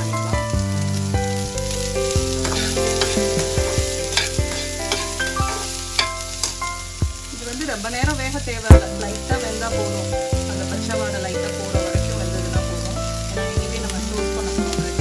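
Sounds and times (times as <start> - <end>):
background music: 0.0 - 15.0
vegetables sizzling in oil: 0.8 - 15.0
metal spatula scraping pan: 2.4 - 6.5.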